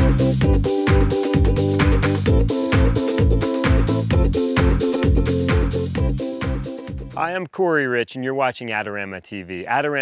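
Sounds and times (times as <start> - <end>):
upbeat intro music: 0.0 - 7.4.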